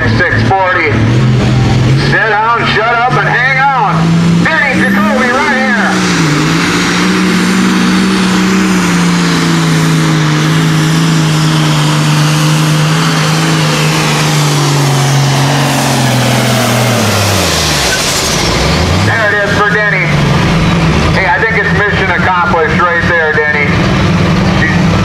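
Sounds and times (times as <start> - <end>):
diesel tractor engine revving hard: 0.0 - 25.0.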